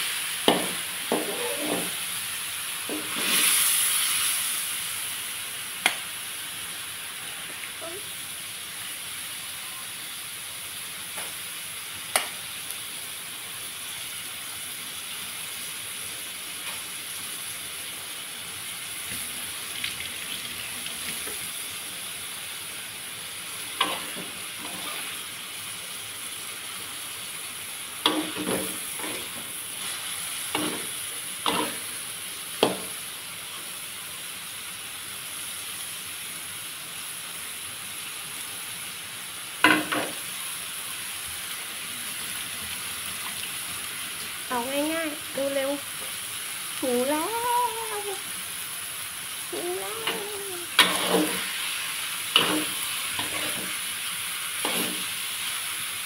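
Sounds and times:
food sizzling in a wok: 0.0 - 56.0
metal spatula scraping a wok: 1.1 - 2.0, 2.9 - 3.8, 23.8 - 25.2, 50.8 - 51.7, 52.3 - 53.9, 54.6 - 55.2.

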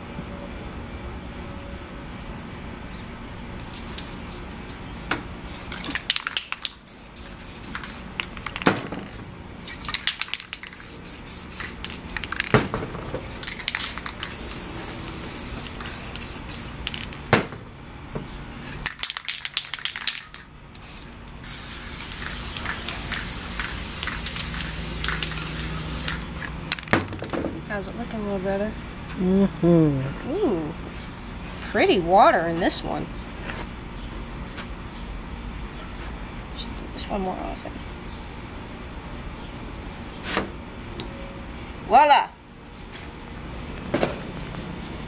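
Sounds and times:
spray paint can hissing: 5.8 - 8.7, 9.7 - 12.6, 13.4 - 17.2, 18.9 - 26.9.

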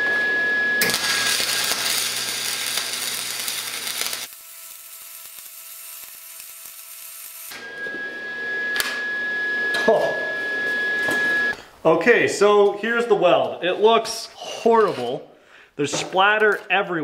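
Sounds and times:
welding arc crackling: 0.8 - 7.6.

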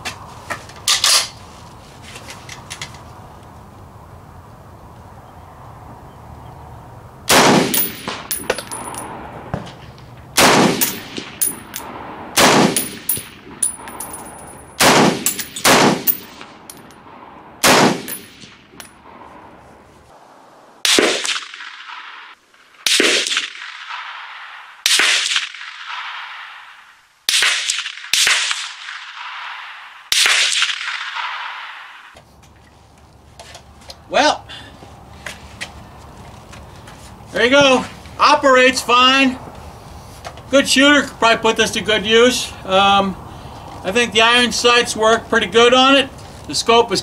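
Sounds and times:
rifle shots echoing: 7.3 - 9.5, 10.4 - 19.6, 20.8 - 32.2.

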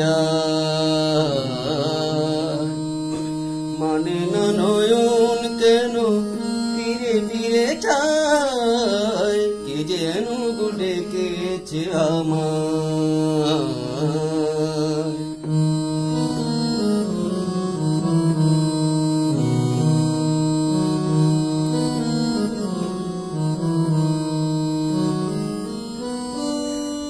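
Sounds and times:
man singing slow melody: 0.0 - 17.2.

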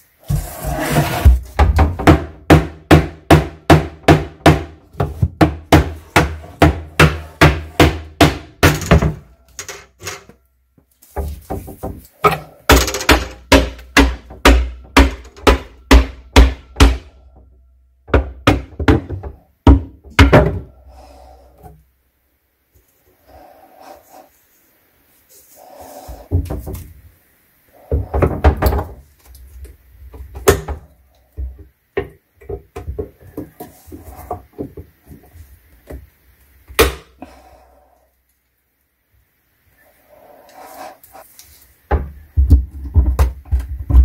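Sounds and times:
hammer striking wood: 1.6 - 9.3, 11.2 - 17.2, 18.1 - 20.7, 36.8 - 37.1
faint knocks and scrapes: 8.8 - 13.4, 27.8 - 36.1.

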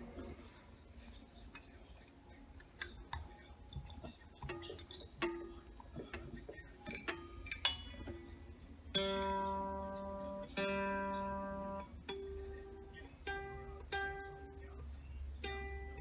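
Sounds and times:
electric guitar string plucked: 8.9 - 14.4.

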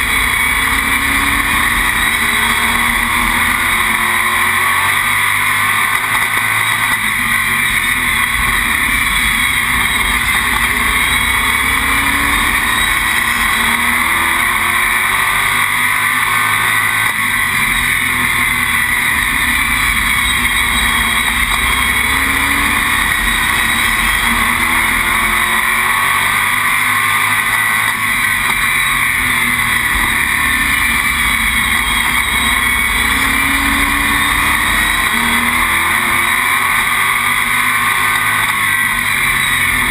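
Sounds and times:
race car engine roaring: 0.0 - 39.9
road and wind noise: 0.0 - 39.9.

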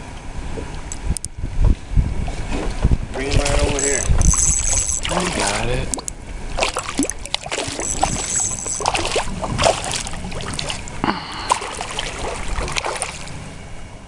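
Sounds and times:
fish thrashing and splashing water: 3.3 - 13.4.

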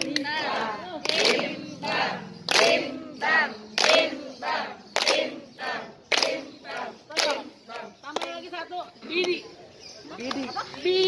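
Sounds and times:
women singing in unison: 0.0 - 8.0
hands clapping rhythmically: 0.0 - 9.5, 10.2 - 10.5.

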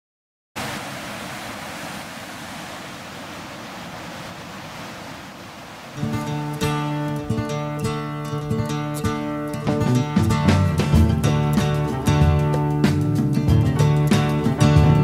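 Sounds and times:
waterfall rushing: 0.6 - 7.4
acoustic guitar strumming: 6.0 - 15.0.

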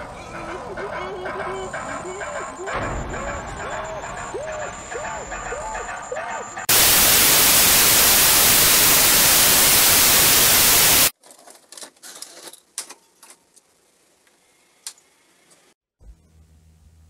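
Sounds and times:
television static hiss: 6.7 - 11.1.

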